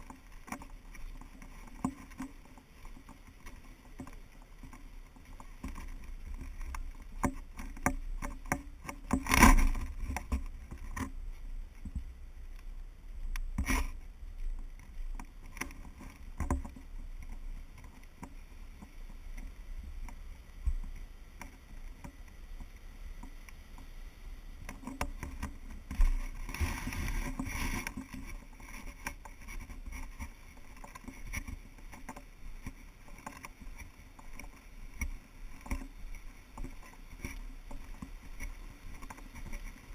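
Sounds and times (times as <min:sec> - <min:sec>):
wind on microphone: 0:25.2 - 0:28.2.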